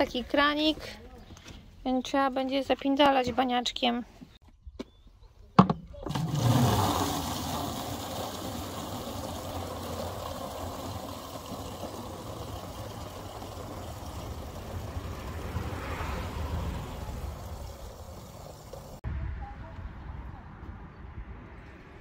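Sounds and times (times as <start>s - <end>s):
water filling plastic bottle: 6.1s - 14.6s.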